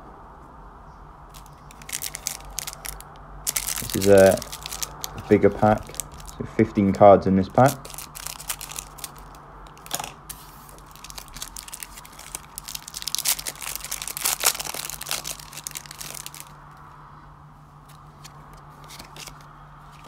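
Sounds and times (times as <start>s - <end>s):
foil wrapper tearing and crinkling: 1.3s - 6.4s, 7.6s - 16.6s, 18.8s - 20.0s.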